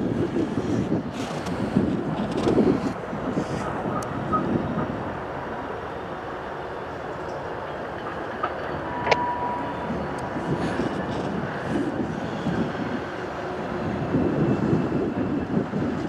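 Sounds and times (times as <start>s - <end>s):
diesel locomotives rumbling: 0.0s - 16.0s.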